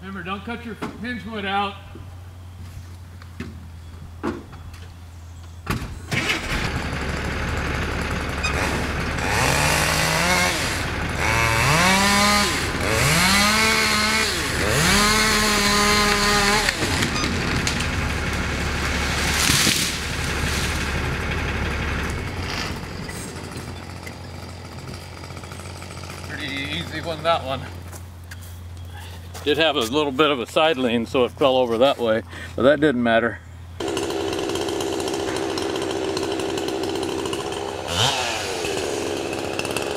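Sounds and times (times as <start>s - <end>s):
tree crashing down: 6.1s - 26.3s
chainsaw revving: 6.1s - 27.8s, 33.8s - 39.9s.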